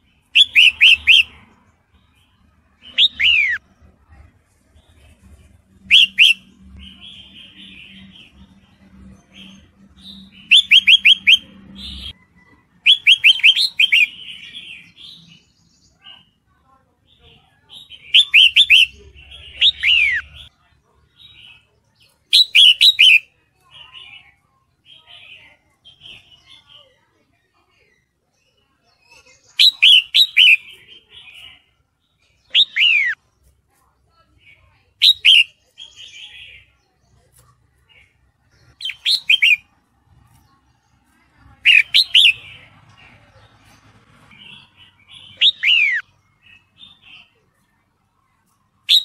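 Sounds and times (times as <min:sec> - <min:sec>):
bird chirping: 0:00.0 - 0:04.2, 0:04.8 - 0:16.4, 0:17.1 - 0:27.0, 0:27.6 - 0:49.0
bird whistled calls: 0:00.4 - 0:01.3, 0:05.9 - 0:06.5, 0:10.4 - 0:12.1, 0:22.4 - 0:23.2, 0:29.6 - 0:30.8, 0:35.0 - 0:35.5, 0:38.8 - 0:39.6.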